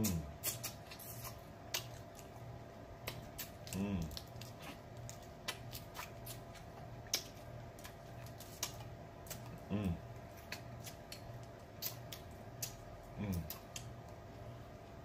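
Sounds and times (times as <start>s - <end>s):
person humming: 3.7s - 4.2s, 9.6s - 10.0s, 13.2s - 13.6s.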